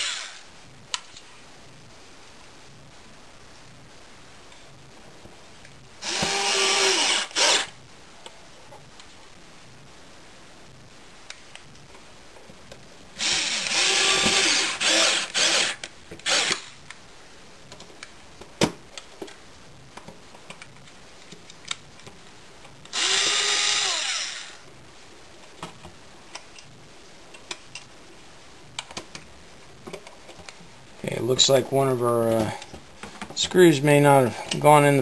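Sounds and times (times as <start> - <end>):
power drill motor whine: 0.0 - 0.4, 6.0 - 7.7, 13.2 - 16.7, 22.9 - 24.6.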